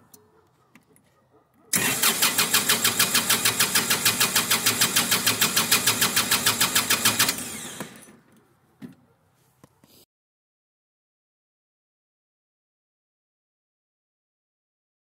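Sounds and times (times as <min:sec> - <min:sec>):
engine cranking on starter: 0:01.7 - 0:08.2.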